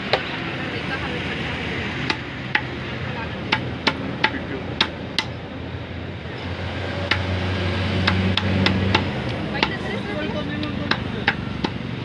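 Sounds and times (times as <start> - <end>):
cleaver chopping on wooden block: 3.5 - 5.4, 7.0 - 7.3, 8.0 - 9.8, 10.6 - 11.9.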